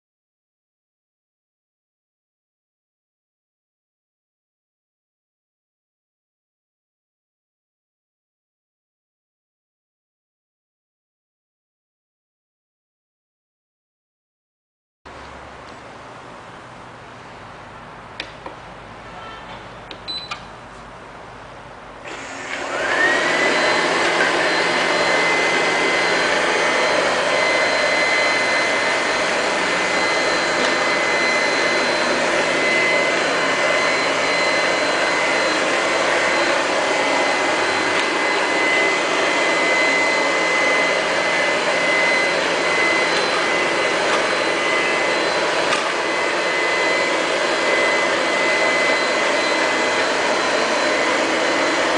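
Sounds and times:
robot vacuum suction whine: 0:22.0 - 0:51.9.

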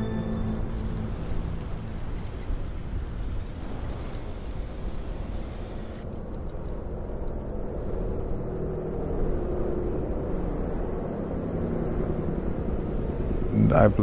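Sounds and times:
bus engine rumbling: 0:00.0 - 0:06.0.

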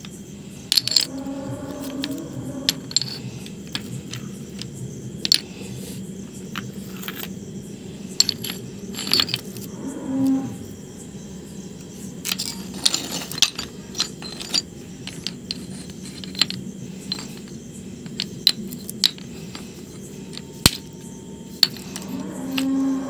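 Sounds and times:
low steady hum: 0:00.1 - 0:23.0
stone blocks clinking together: 0:00.7 - 0:01.1, 0:01.8 - 0:05.4, 0:08.2 - 0:09.7, 0:12.2 - 0:21.0.

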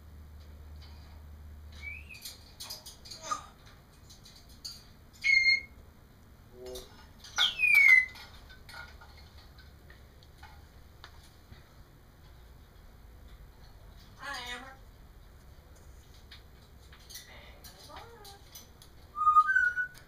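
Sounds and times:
parrot whistling: 0:01.8 - 0:02.2, 0:05.2 - 0:05.7, 0:07.4 - 0:08.2, 0:19.1 - 0:20.0.

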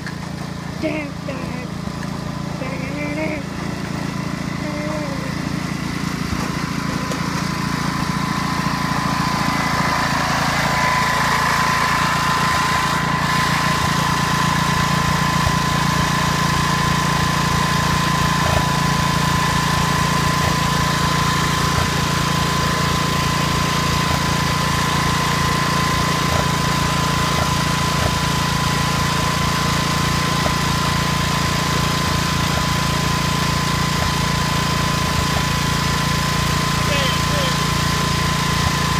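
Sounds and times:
garden tractor engine running: 0:00.0 - 0:38.9
thin steady whine: 0:00.8 - 0:01.8, 0:02.4 - 0:03.9.

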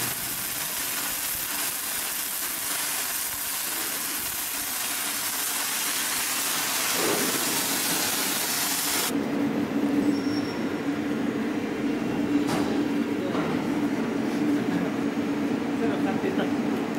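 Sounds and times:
welding arc crackling hiss: 0:00.0 - 0:09.1.

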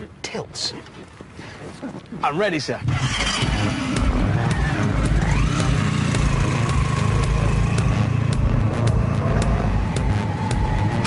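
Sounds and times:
motorcycle engine pulling away: 0:02.9 - 0:11.0.

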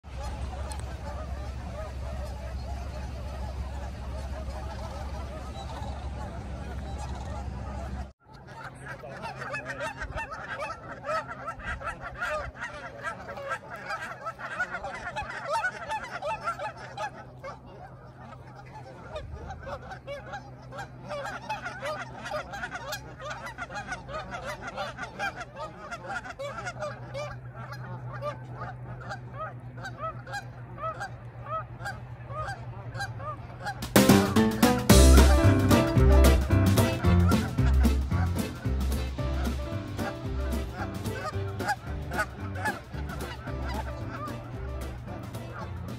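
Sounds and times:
steady low hum: 0:00.1 - 0:08.1
geese honking: 0:00.1 - 0:45.9.

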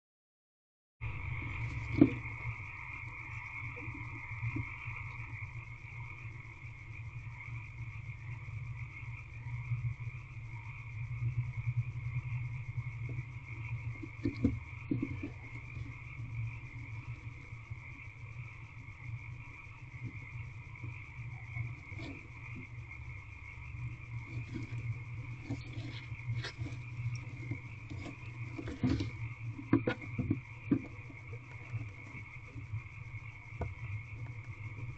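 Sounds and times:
frogs calling: 0:01.0 - 0:34.9
knocks and rustles in wood shavings: 0:24.2 - 0:32.7.

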